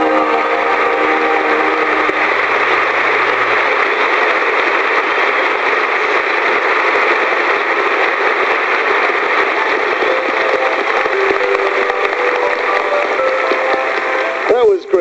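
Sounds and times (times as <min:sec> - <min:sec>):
loud static hiss: 0:00.0 - 0:15.0.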